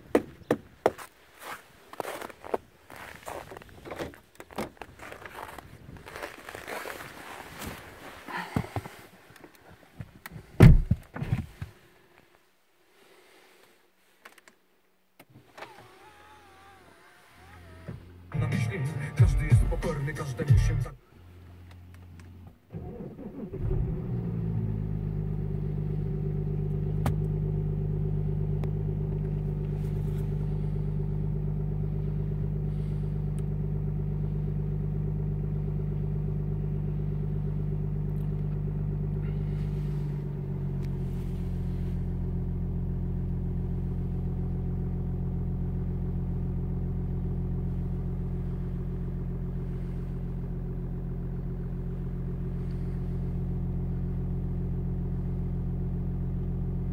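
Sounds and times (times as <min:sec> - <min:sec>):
diesel engine starting: 0:15.4 - 0:56.9
engine idling: 0:15.8 - 0:56.9.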